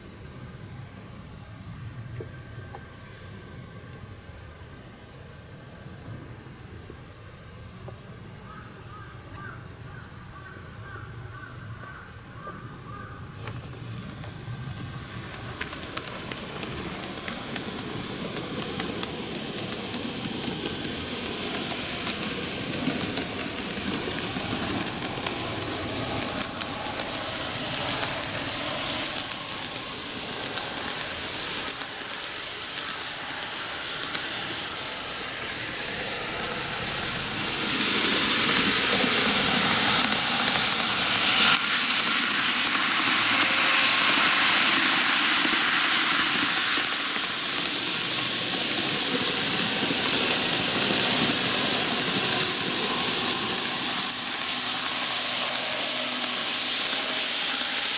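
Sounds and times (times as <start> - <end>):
wheels clicking over rail joints: 7.8 - 57.9
model train motor whir: 13.0 - 57.9.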